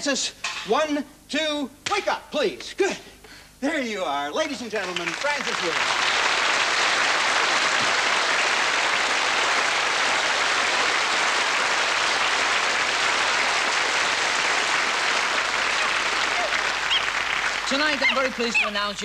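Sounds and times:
audience applauding: 4.7s - 19.0s.

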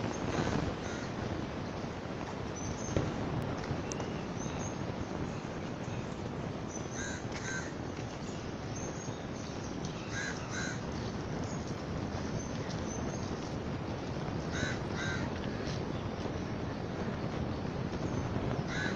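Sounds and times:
steady background hiss: 0.0s - 18.9s
crow cawing: 0.8s - 1.1s, 6.9s - 7.7s, 10.1s - 10.8s, 14.5s - 15.3s, 18.7s - 18.9s.

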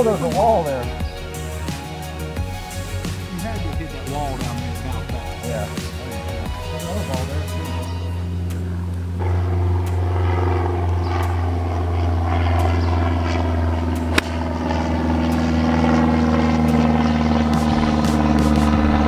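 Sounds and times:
engine drone: 0.0s - 19.0s
golf club striking ball: 14.0s - 14.8s.

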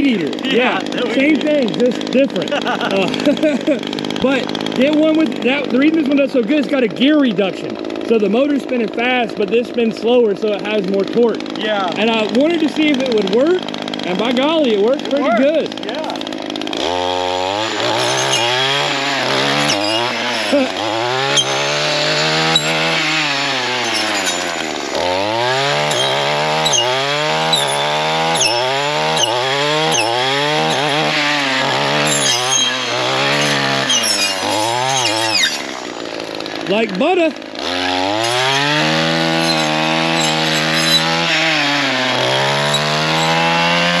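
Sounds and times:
gas trimmer engine revving: 0.0s - 44.0s
saw blade clicking on wood: 23.8s - 31.2s.

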